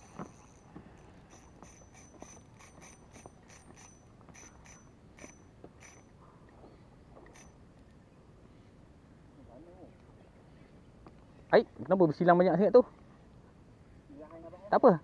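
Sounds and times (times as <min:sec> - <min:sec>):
fishing reel drag clicking: 0:00.0 - 0:06.1, 0:07.2 - 0:07.6.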